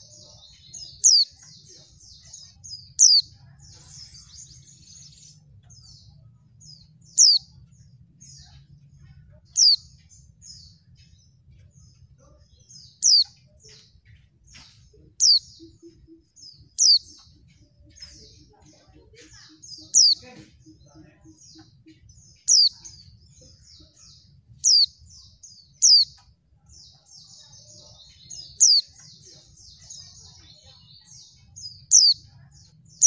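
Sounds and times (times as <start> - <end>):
soft bird twittering: 0.0 - 33.0.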